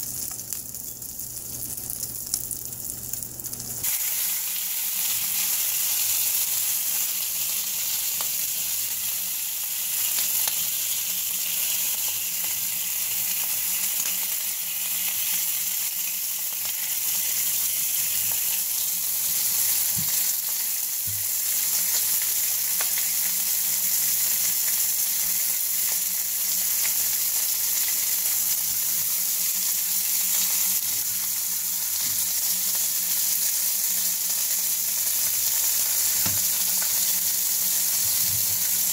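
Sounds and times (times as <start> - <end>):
grease sizzling and crackling: 0.0 - 9.1.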